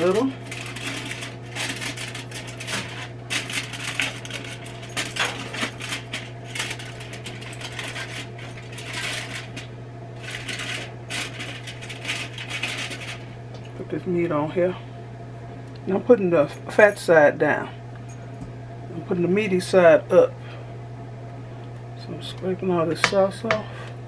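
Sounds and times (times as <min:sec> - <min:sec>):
aluminium foil crinkling: 0:00.0 - 0:13.7
steady low hum: 0:00.0 - 0:24.0.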